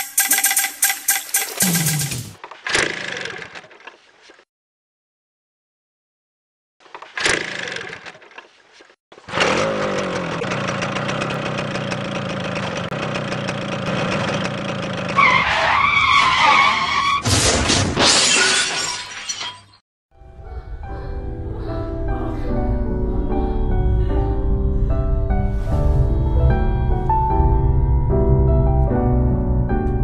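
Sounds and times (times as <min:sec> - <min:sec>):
motorcycle kick-start: 0:09.2 - 0:15.2
motorcycle engine running: 0:09.3 - 0:15.2.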